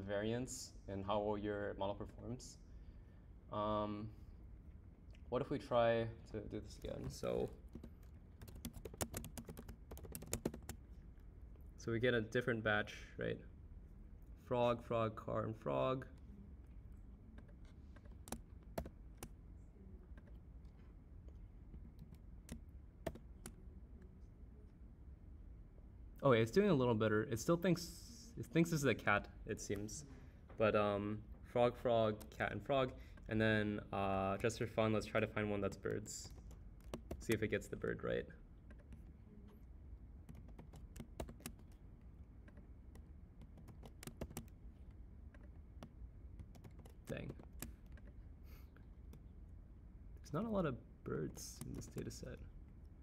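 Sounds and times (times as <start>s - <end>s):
low steady hum: 0.0s - 53.0s
typing on computer keyboard: 6.8s - 10.8s, 17.4s - 19.4s, 21.8s - 23.6s, 35.6s - 37.5s, 40.2s - 41.8s, 42.4s - 48.2s
keyboard keystroke clicks: 22.0s - 23.6s, 40.2s - 41.8s, 42.4s - 44.5s.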